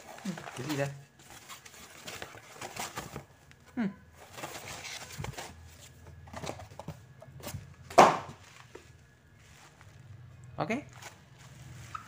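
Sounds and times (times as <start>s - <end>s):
packing paper rustling: 0.0s - 3.6s, 4.2s - 7.6s.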